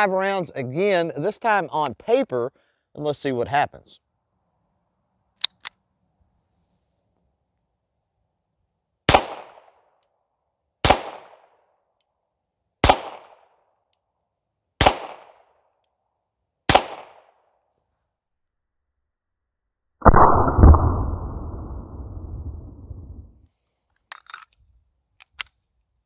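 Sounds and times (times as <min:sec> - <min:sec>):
pistol shots: 0:09.1 - 0:09.7, 0:10.8 - 0:11.5, 0:12.8 - 0:13.4, 0:14.8 - 0:15.4, 0:16.7 - 0:17.4.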